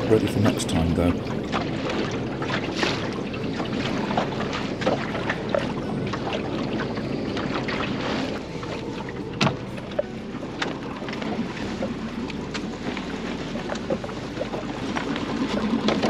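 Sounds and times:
water splashing along boat hull: 0.0 - 16.0.

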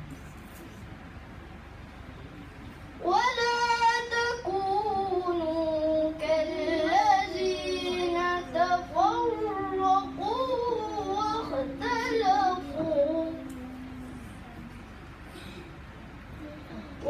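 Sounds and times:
child reciting in melodic chant: 3.0 - 14.5.

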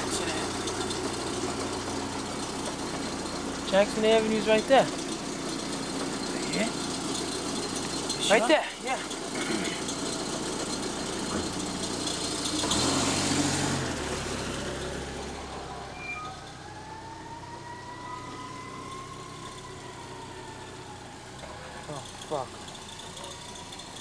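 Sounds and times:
car engine pulling away: 0.0 - 24.0
faint high tone: 15.8 - 16.5.

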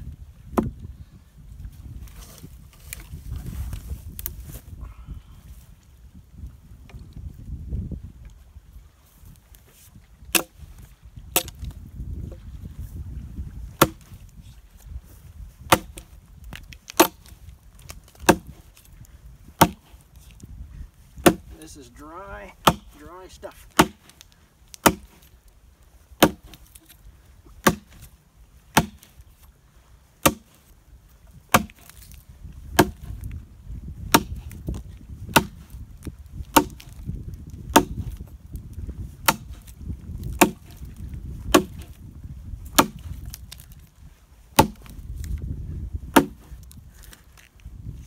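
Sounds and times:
axe chopping log: 0.5 - 0.8, 10.3 - 10.6, 11.3 - 11.7, 13.8 - 14.2, 15.6 - 18.7, 19.5 - 20.0, 21.2 - 21.8, 22.4 - 25.3, 26.2 - 28.1, 28.7 - 29.4, 30.2 - 30.6, 31.5 - 33.4, 34.0 - 38.2, 39.2 - 42.0, 42.7 - 43.7, 44.5 - 45.4, 46.1 - 47.2.

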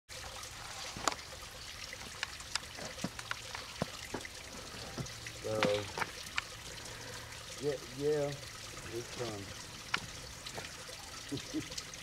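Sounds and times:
water dripping and ticking: 0.1 - 12.0
water trickling: 0.1 - 12.0.

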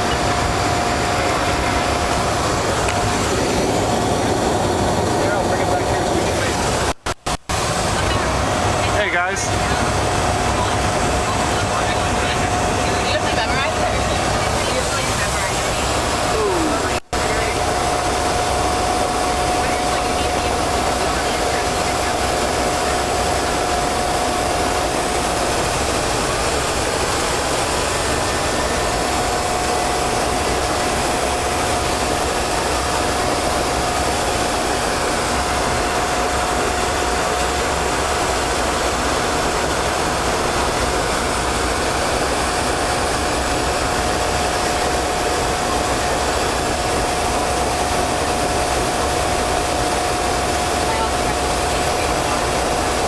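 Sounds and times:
aircraft engine and airflow rush: 0.0 - 53.0
thin steady whine: 0.0 - 53.0.

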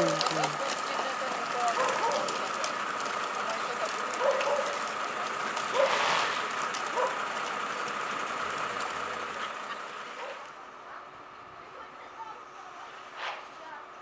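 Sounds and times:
constant high whine: 0.0 - 14.0
fire engine steady hiss: 5.7 - 6.6.

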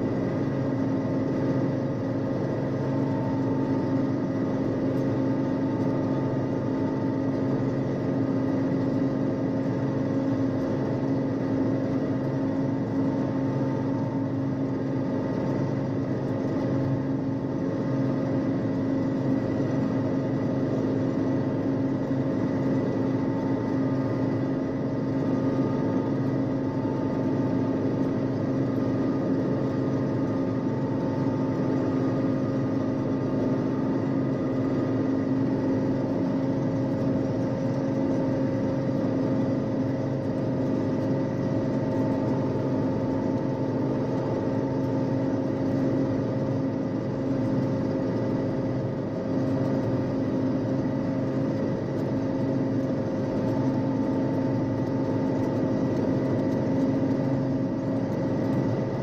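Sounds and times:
combine harvester droning: 0.0 - 59.0.

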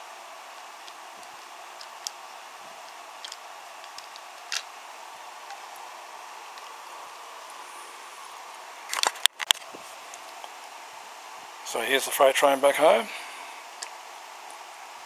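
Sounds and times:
steady hiss: 0.0 - 15.0
toy train wagons clicking: 2.8 - 4.7.

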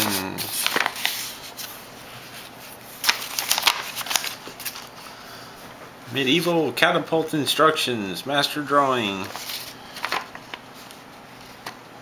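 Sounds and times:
paper rustling: 0.0 - 5.0, 9.2 - 11.8.

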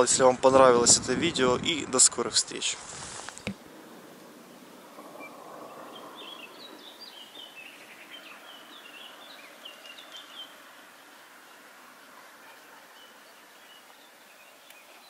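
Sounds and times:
faint outdoor hiss: 0.0 - 15.0
small birds chirping: 3.4 - 15.0.

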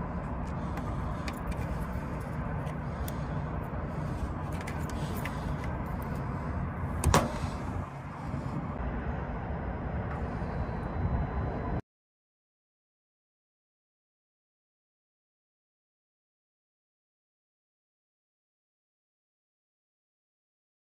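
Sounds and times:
low background rumble: 0.0 - 11.8.

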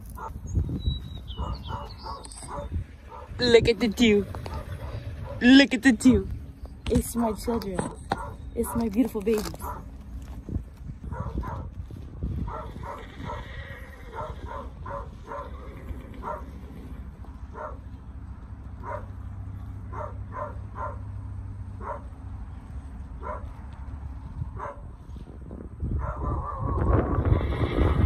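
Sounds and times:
dog barking: 0.2 - 0.4, 1.4 - 3.4, 4.5 - 5.4, 8.1 - 8.9, 9.6 - 9.9, 11.1 - 11.7, 12.5 - 13.4, 14.1 - 15.6, 16.2 - 16.5, 17.5 - 17.8, 18.8 - 19.1, 19.9 - 21.0, 21.8 - 22.1, 23.2 - 23.5, 24.6 - 24.8, 26.0 - 26.8.

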